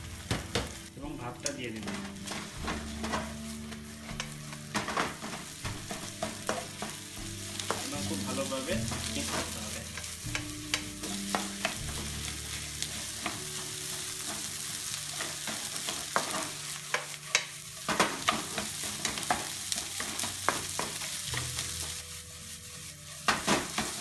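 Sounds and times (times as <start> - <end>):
rice sizzling in a wok: 0.0 - 24.0
spatula clacking against pan: 10.0 - 11.8, 15.2 - 21.1.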